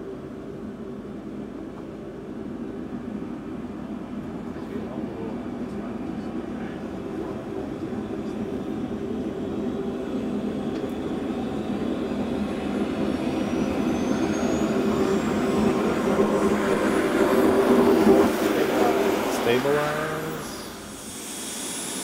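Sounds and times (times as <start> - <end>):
jet turbine spooling up: 1.3 - 22.0
high whine rising in pitch: 11.9 - 22.0
steady rushing noise: 14.8 - 22.0.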